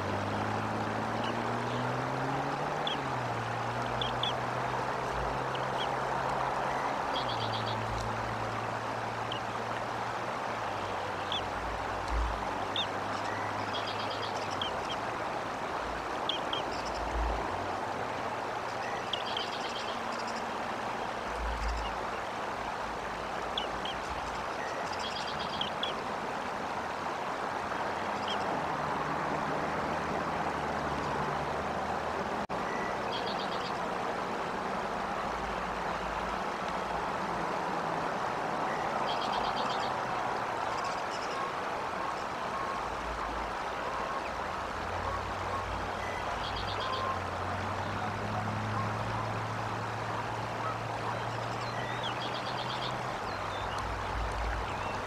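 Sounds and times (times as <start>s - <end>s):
trilled bird calls: 3.9s - 4.4s, 6.7s - 8.0s, 11.2s - 11.5s, 12.6s - 15.1s, 16.2s - 17.2s, 18.7s - 20.5s, 21.4s - 22.1s, 23.5s - 26.0s, 32.6s - 33.8s, 40.6s - 47.2s, 50.4s - 55.0s.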